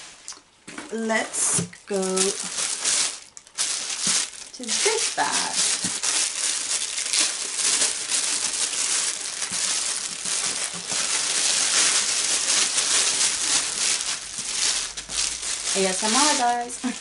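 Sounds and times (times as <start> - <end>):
people talking: 0.9 - 2.4, 4.6 - 5.7, 15.7 - 17.0
plastic bag crinkling: 0.9 - 17.0.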